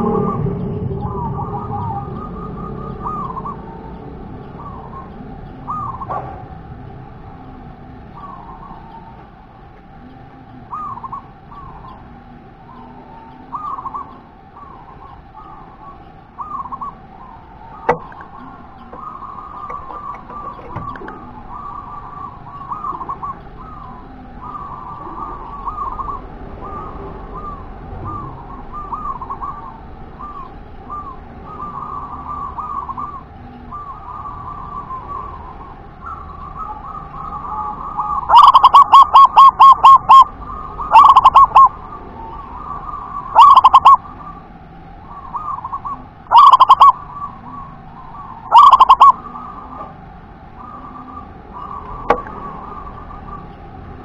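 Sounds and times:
dove soft warbling coo: 0.0s - 54.0s
dove loud staccato coos: 12.7s - 44.3s, 45.1s - 50.0s.

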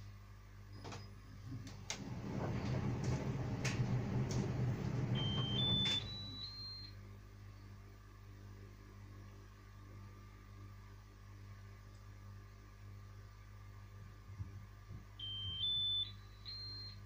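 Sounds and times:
tumble dryer drum turning: 0.9s - 6.4s
rising short beeps: 5.2s - 6.9s.

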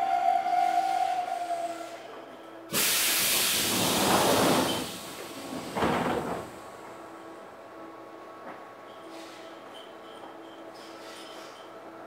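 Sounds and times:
compressed air hissing: 2.7s - 5.4s.

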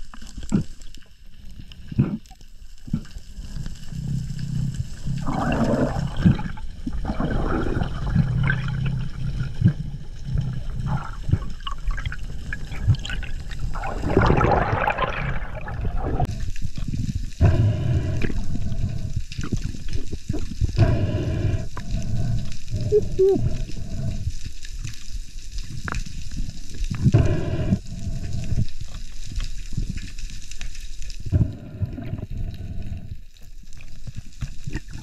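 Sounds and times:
underwater rushing and bubbling: 0.0s - 35.0s.

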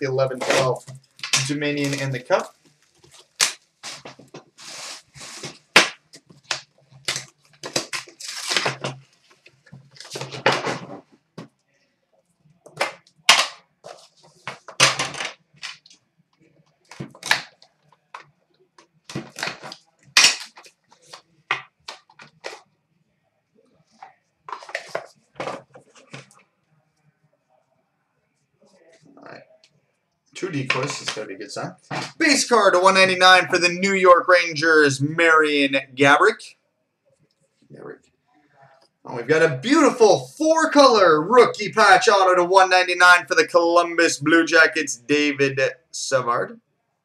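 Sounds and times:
wrapping crinkling and tearing: 1.0s - 5.6s, 6.4s - 10.4s.

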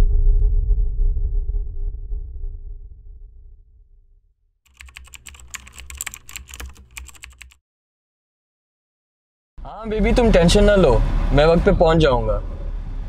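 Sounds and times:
keyboard key clicks: 4.7s - 7.6s.

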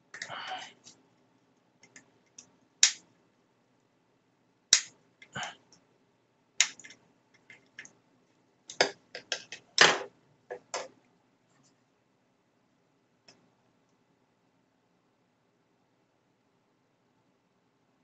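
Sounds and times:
plastic clicks and knocks: 8.7s - 10.9s.

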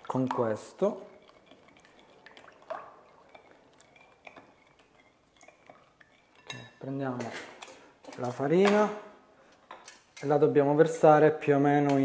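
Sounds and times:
liquid swishing in a bowl: 0.0s - 6.8s.

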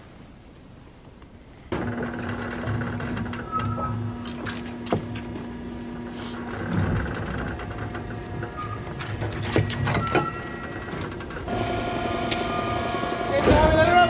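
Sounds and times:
machinery humming: 1.7s - 14.0s
steady whine: 9.8s - 14.0s.

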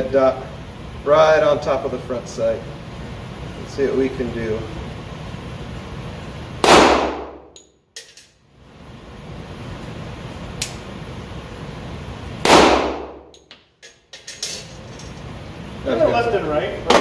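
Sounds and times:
pistol shots with reverberation: 6.6s - 7.5s, 12.4s - 13.3s.

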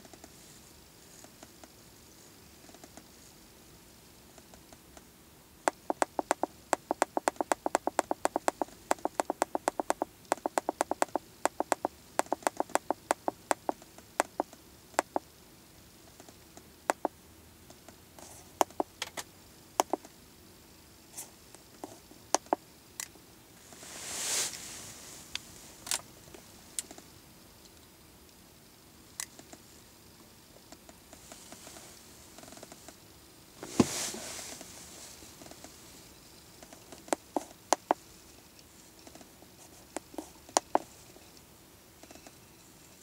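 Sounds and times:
keypad button clicking: 5.7s - 14.4s
short hiss: 23.7s - 26.0s, 33.6s - 35.4s.

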